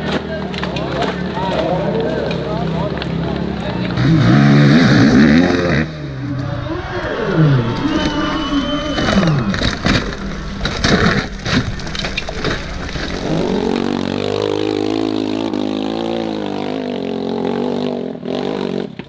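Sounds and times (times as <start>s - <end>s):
dirt bike clattering down rocks: 0.0s - 4.0s, 7.8s - 16.0s
dirt bike engine under load: 7.6s - 16.6s.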